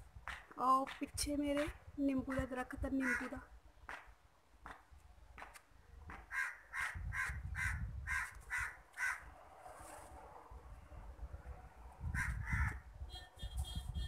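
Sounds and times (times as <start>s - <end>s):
crow cawing: 3.0s - 3.4s, 6.3s - 9.3s, 12.2s - 12.8s.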